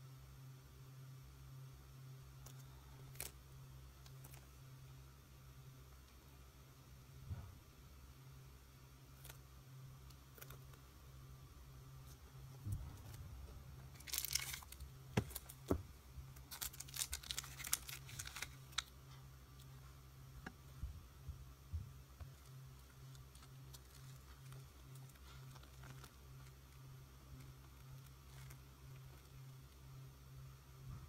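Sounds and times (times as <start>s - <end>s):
plastic crinkling: 12.5s - 19.7s, 22.2s - 29.5s.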